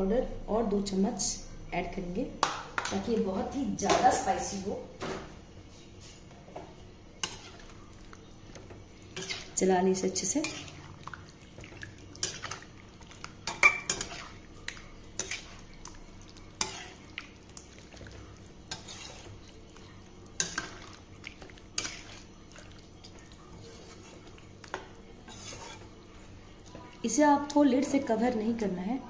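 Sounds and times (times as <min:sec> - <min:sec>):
metal spatula scraping a pan: 0:07.2 - 0:07.7, 0:09.1 - 0:10.9, 0:13.4 - 0:14.4, 0:15.2 - 0:15.6, 0:16.6 - 0:17.0, 0:18.7 - 0:19.6, 0:21.8 - 0:22.3, 0:25.2 - 0:25.9.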